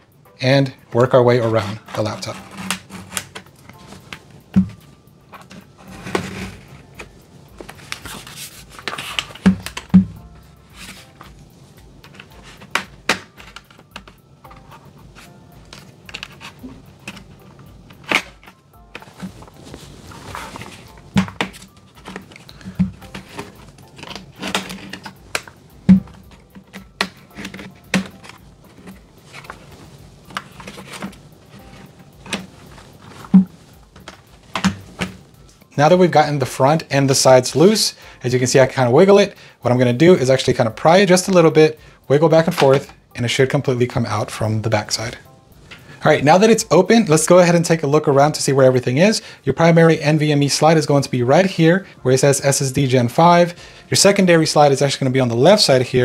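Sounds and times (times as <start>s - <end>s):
plastic clips snapping: 8.8s - 10.0s.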